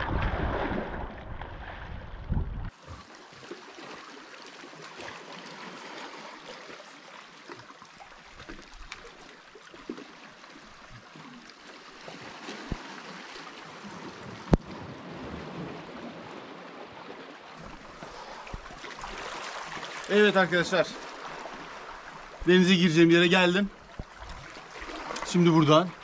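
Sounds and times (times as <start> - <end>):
wind rumbling on microphone: 0.0 - 2.8
waves splashing over rocks: 12.0 - 26.0.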